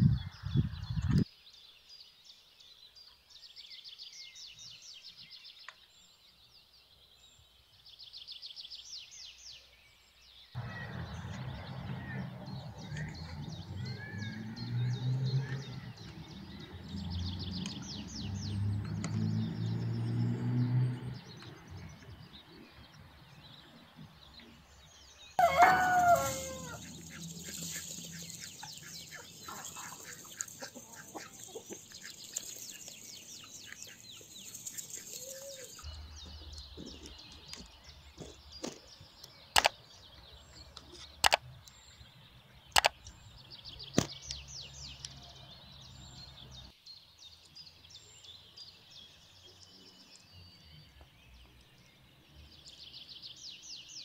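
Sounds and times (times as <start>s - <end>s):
rooster crowing: 25.4s - 27.0s
hens clucking: 25.4s - 35.8s
sharp clicks: 39.2s - 39.8s, 40.7s - 41.8s, 42.7s - 43.2s.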